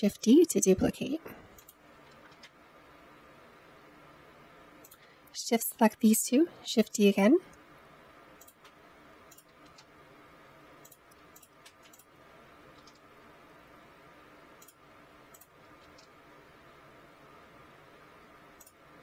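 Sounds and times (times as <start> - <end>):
faint room hum: 0.0 - 19.0
mouse and keyboard clicks: 1.6 - 2.6, 10.8 - 12.1, 12.7 - 13.1, 14.6 - 16.2.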